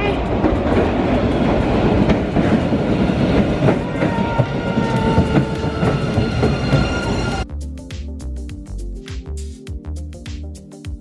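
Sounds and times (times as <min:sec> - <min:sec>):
subway train wheels rumbling: 0:00.0 - 0:07.4
wheels clacking over rail joints: 0:00.2 - 0:07.4.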